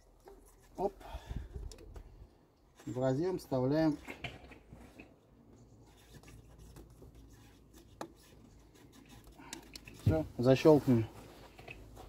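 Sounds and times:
faint rubbing: 0:04.8 - 0:12.0.

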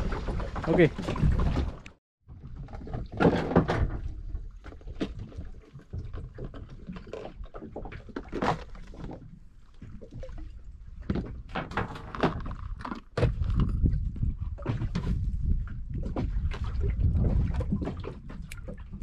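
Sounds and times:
knocks and thumps on boat: 0:00.0 - 0:19.0.

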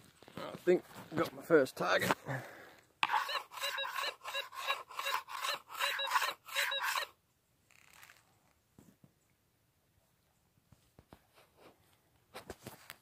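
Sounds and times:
metal detector warbling tone: 0:03.0 - 0:07.1.

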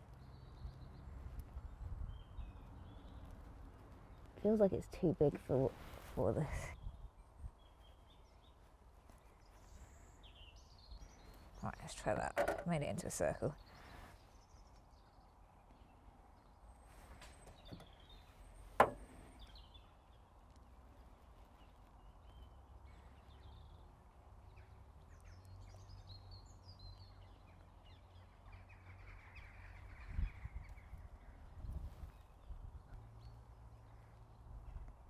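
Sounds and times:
dull knock: 0:18.8 - 0:19.1.

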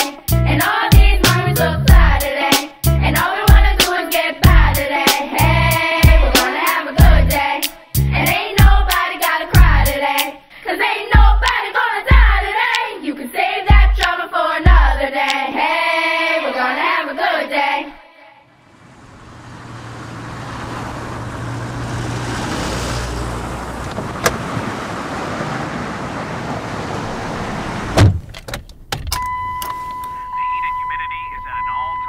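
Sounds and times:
song with singing: 0:00.0 - 0:18.4
car noise rumble and hiss: 0:18.5 - 0:28.8
thump: 0:27.9 - 0:28.6.

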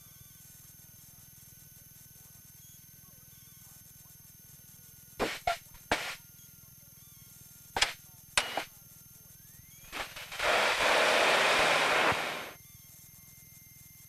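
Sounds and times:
radio static hiss: 0:05.2 - 0:06.2, 0:07.8 - 0:08.7, 0:09.9 - 0:12.6
radio transmitter clicks: 0:05.2 - 0:06.2, 0:07.8 - 0:08.7, 0:09.9 - 0:12.6.

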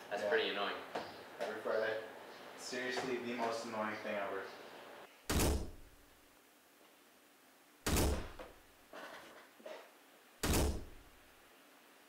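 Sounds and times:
ball thumping against wall: 0:07.9 - 0:08.6, 0:10.4 - 0:11.0.

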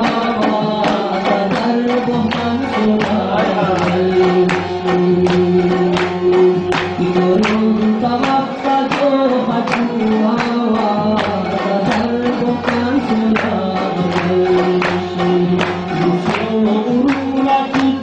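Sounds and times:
hand drum beat: 0:00.0 - 0:18.0
man singing into microphone: 0:00.0 - 0:18.0.

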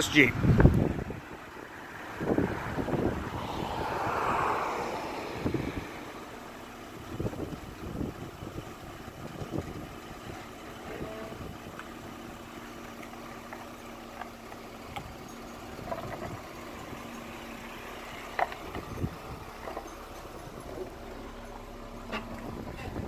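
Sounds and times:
car engine idling: 0:00.0 - 0:23.0
tyres clicking on asphalt: 0:00.0 - 0:23.0.

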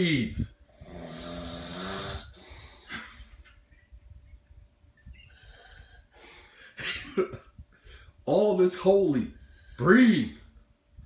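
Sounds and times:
man snoring: 0:00.8 - 0:02.5
loud snort: 0:00.8 - 0:02.8.

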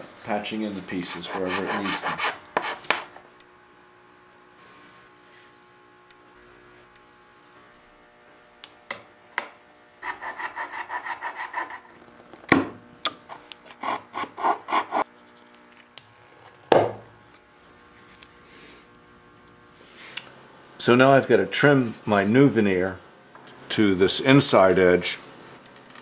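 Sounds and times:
chisel scraping wood: 0:01.0 - 0:03.1, 0:10.0 - 0:11.9, 0:13.8 - 0:15.1.

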